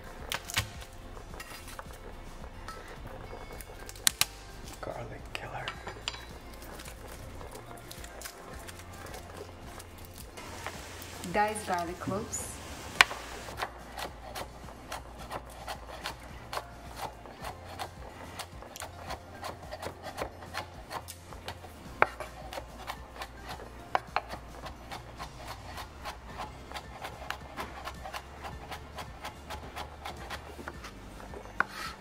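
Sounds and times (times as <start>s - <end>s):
kitchen utensils scraping: 1.3s - 3.9s, 10.4s - 32.0s.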